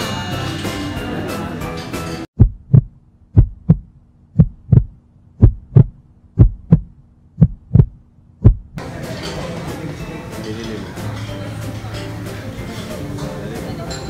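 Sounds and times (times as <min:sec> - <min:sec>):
heartbeat thumps: 0:02.4 - 0:08.8.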